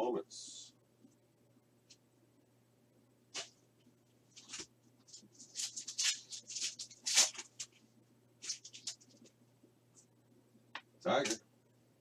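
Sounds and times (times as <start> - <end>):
foil pack crinkling: 4.4 - 7.8, 8.4 - 9.2.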